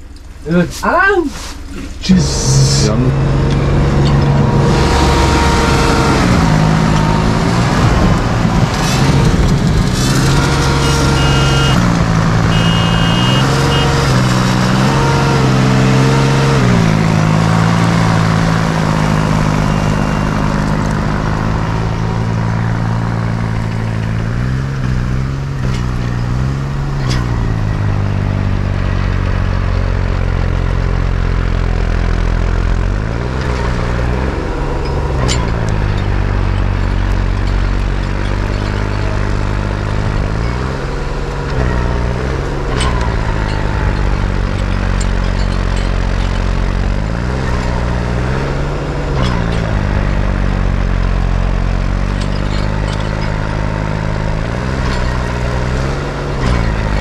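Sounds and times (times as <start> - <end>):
tractor diesel engine working hard: 0.0 - 57.0.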